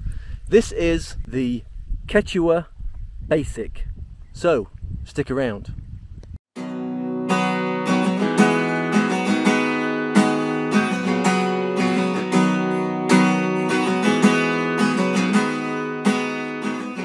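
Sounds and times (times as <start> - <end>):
acoustic guitar strumming chords: 6.6 - 17.0.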